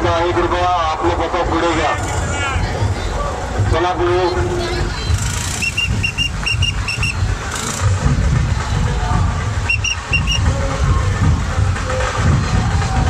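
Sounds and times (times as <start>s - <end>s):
heavy low rumble: 0.0s - 13.0s
street procession din: 0.0s - 13.0s
short high whistle toots: 5.6s - 7.2s, 9.7s - 10.4s.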